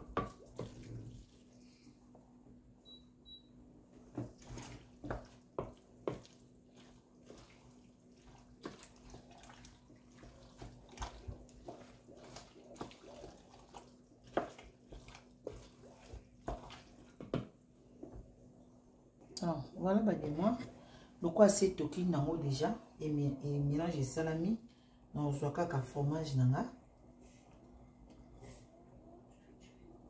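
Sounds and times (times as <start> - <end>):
spoon stirring pasta in a pot: 0.0 - 2.2, 3.9 - 18.4.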